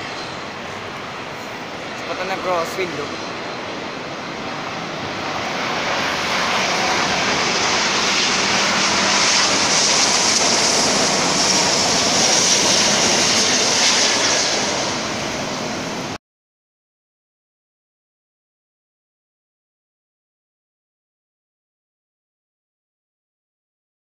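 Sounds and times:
jet engine rush: 0.0s - 16.2s.

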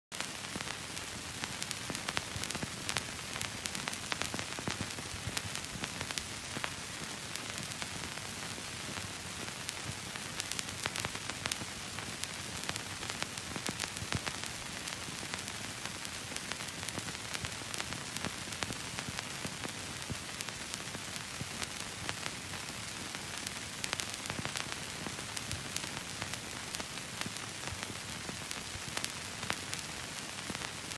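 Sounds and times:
crackling static hiss: 0.1s - 30.9s.

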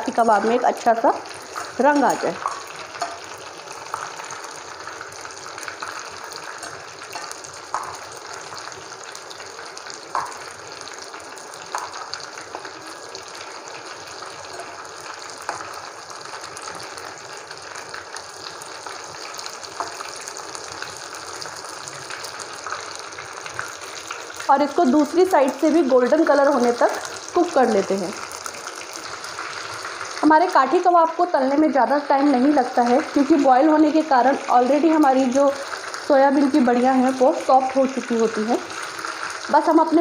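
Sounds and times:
hot oil sizzling: 0.0s - 40.0s.

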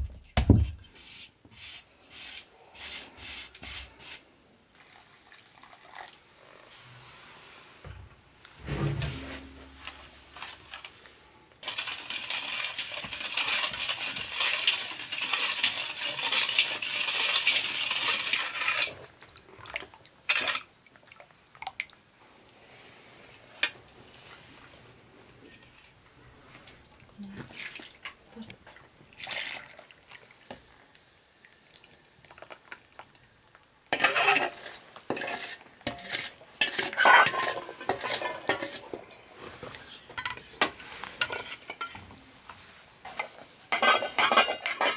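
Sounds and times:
spoon scraping metal bowl: 11.6s - 19.0s, 33.9s - 38.8s, 40.2s - 42.0s, 43.1s - 44.9s.

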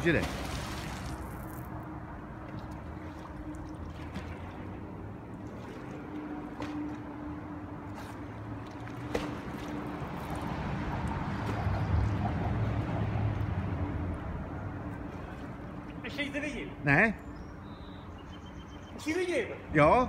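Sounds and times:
water splashing around swimmer: 0.0s - 16.2s.

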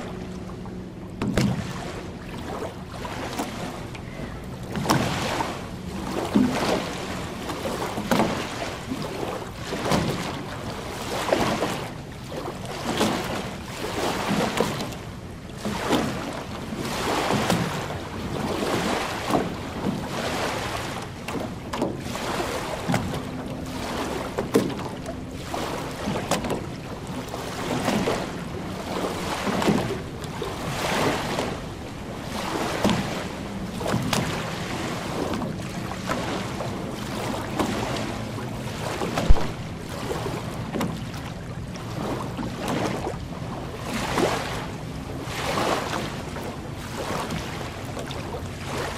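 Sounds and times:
waves lapping on shore: 0.0s - 48.9s
wind on microphone: 38.9s - 41.2s.

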